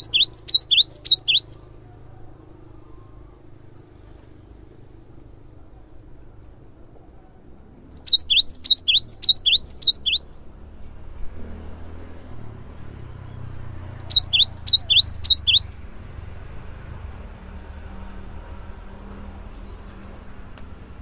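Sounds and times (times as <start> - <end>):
bird singing two-note phrase: 7.9 - 10.2.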